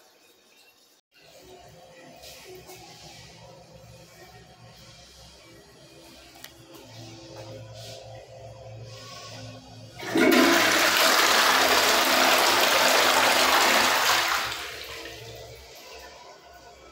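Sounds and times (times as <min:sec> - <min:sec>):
toilet flushing: 0:08.9 - 0:16.2.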